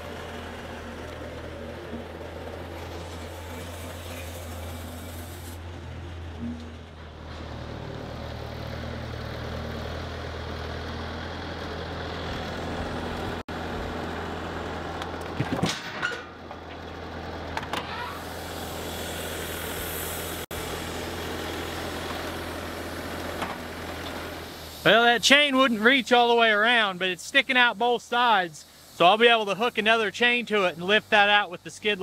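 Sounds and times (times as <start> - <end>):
loader engine running: 0.0 - 29.2.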